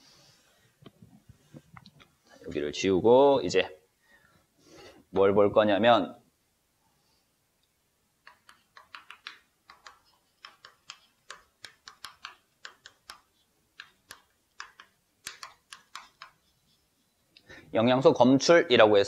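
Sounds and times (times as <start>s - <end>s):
chalk writing on chalkboard: 8.3s - 17.2s.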